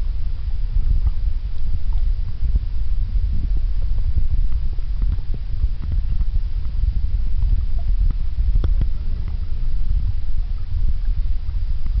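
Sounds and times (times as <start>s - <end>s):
low underwater rumble: 0.0s - 12.0s
faint underwater clicks: 0.5s - 12.0s.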